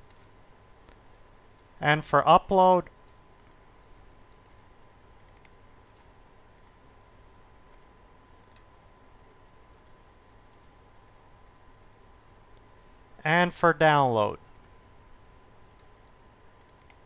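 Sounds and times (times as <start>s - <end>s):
mouse and keyboard clicks: 5.2s - 6.8s, 16.6s - 17.0s.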